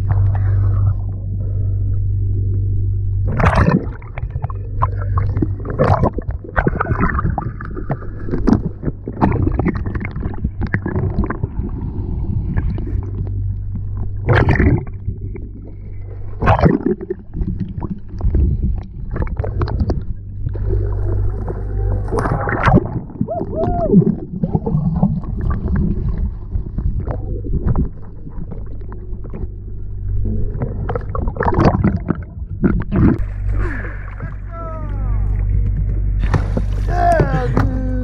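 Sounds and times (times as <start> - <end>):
boat engines drone underwater: 0.0 - 38.0
crackling bubbles: 2.4 - 34.5.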